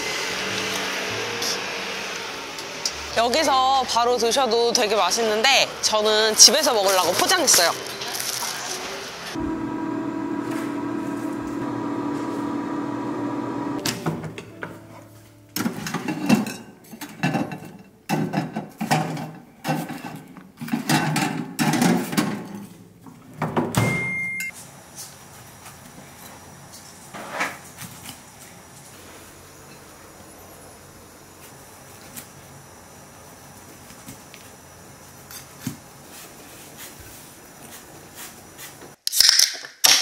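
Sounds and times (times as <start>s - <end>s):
air fryer oven humming: 0.0s - 14.3s
high beep: 23.8s - 24.5s.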